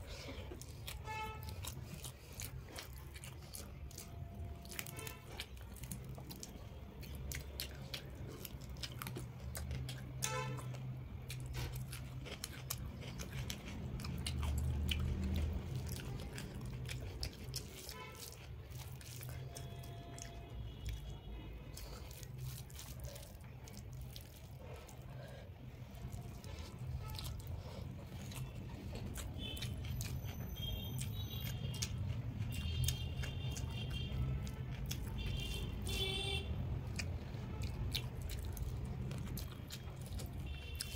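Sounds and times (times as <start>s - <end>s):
person chewing food: 0.0s - 40.9s.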